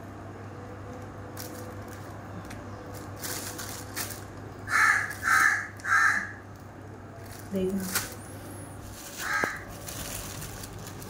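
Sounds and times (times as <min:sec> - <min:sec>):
low steady hum: 0:00.0 - 0:11.0
plastic bags crinkling: 0:02.8 - 0:05.3, 0:06.5 - 0:11.0
crow cawing: 0:04.7 - 0:06.5, 0:09.2 - 0:09.7.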